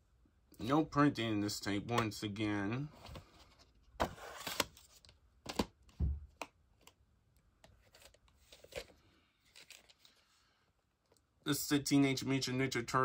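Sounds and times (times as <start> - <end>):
cassette case rustling slide: 3.0 - 4.9.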